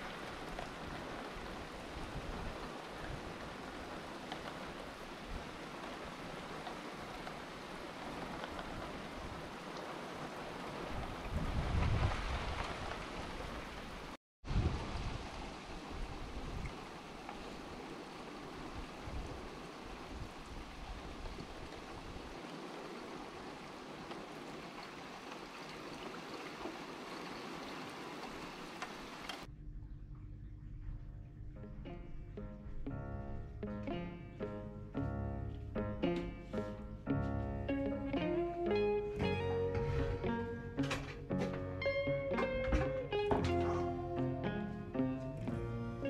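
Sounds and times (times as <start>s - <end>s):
faint raindrop ticks: 0.0s - 13.8s, 16.6s - 17.7s, 19.2s - 31.0s
heavy rain falling: 0.0s - 29.5s, 33.4s - 46.0s
water drips ticking: 23.6s - 37.2s.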